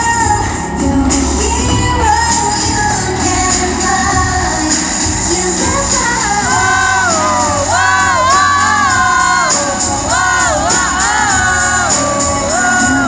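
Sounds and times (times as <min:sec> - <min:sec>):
pop song over sound system: 0:00.0 - 0:13.0
audience cheering and shouting: 0:05.5 - 0:13.0.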